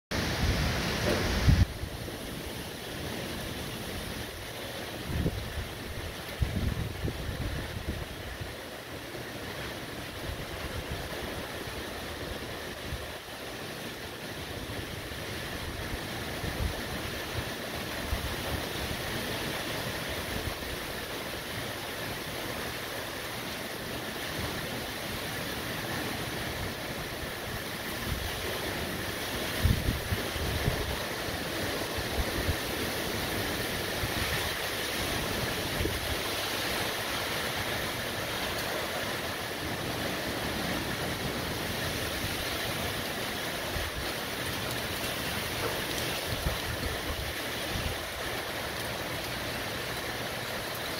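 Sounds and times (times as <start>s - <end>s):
wind buffeting microphone: 0.1s - 2.1s, 5.0s - 8.6s, 27.2s - 38.6s, 39.2s - 48.4s
heavy driving rain: 0.1s - 50.9s.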